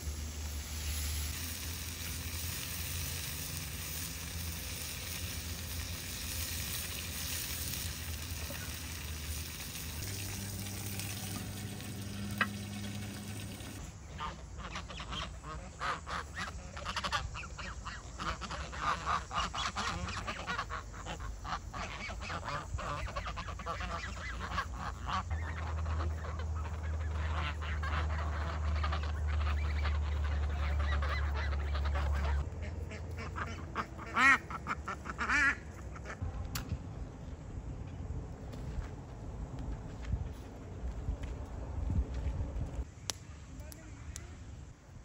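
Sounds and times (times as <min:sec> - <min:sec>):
farmyard fowl calling: 0:04.8 - 0:36.2.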